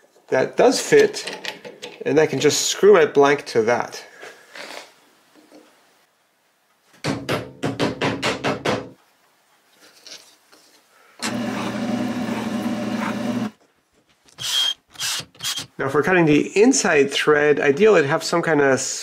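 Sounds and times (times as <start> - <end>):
drill press humming: 11.2 - 13.6.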